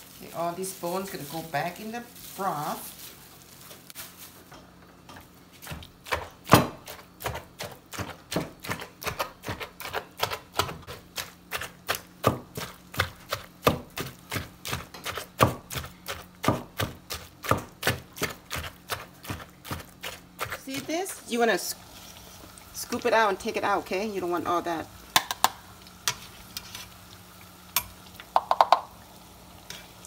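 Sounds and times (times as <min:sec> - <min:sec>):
knife chopping on cutting board: 0:11.6 - 0:20.6.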